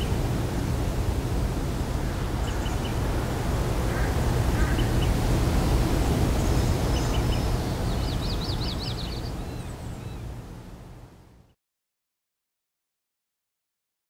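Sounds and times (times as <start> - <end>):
steady rushing noise: 0.0 - 9.5.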